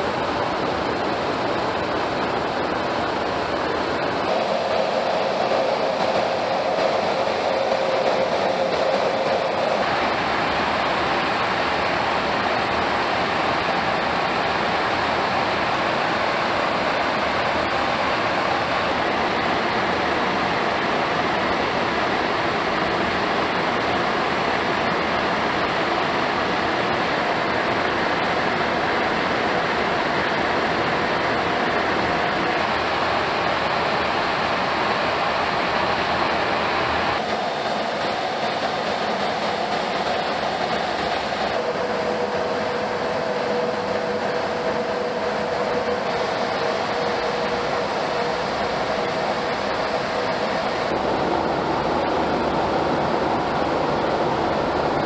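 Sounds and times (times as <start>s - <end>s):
aircraft cabin engine drone: 0.0s - 55.0s.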